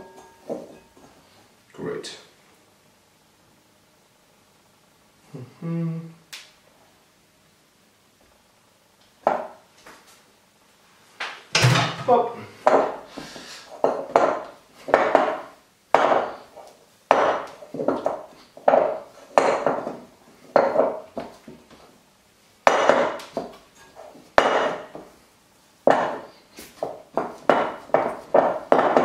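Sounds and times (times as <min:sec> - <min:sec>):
glass bowl knocking on worktop: 0:20.6 - 0:21.3, 0:22.7 - 0:23.5, 0:24.4 - 0:25.0, 0:27.2 - 0:29.0.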